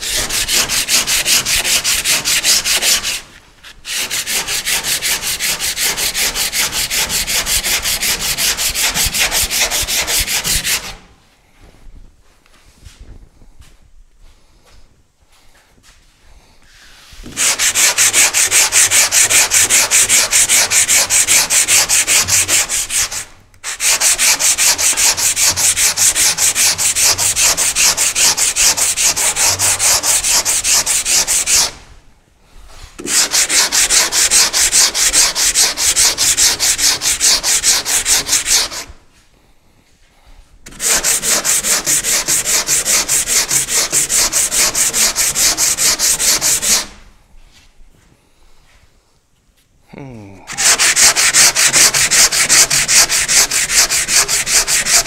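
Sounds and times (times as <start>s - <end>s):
sandpaper sanding strokes: 0.0s - 11.0s, 17.0s - 31.8s, 32.7s - 39.0s, 40.7s - 47.0s, 50.5s - 55.0s.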